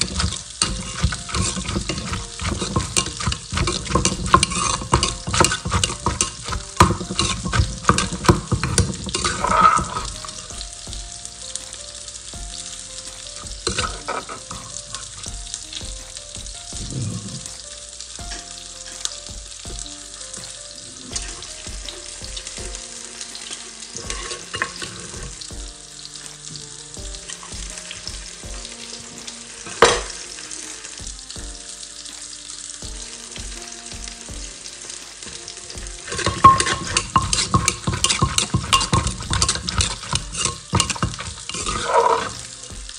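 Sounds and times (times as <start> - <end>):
spoon scraping and tapping: 0.0 - 10.5, 36.0 - 42.5
pestle pounding in mortar: 0.0 - 11.1, 13.4 - 17.5, 35.8 - 42.9
soft background melody: 0.0 - 42.9.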